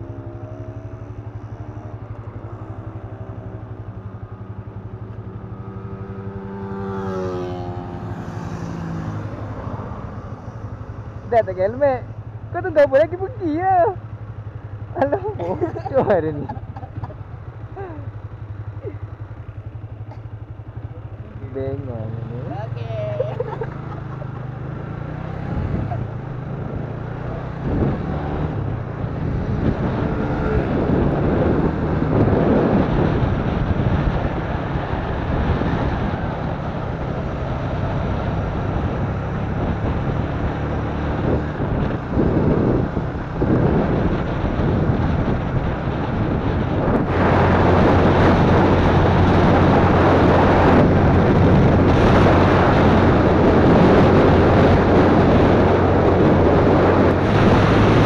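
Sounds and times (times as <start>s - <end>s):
motorcycle engine revving: 0.0s - 58.0s
wind rushing over microphone: 22.5s - 58.0s.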